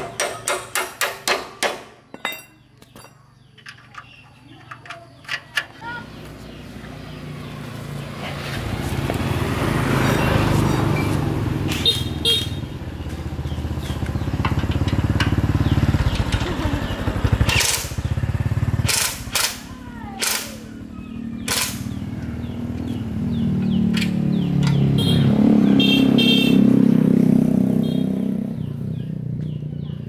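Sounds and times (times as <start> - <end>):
small motorcycle engine revving: 6.0 - 29.8
sharp cracks: 17.3 - 20.7, 21.4 - 22.0.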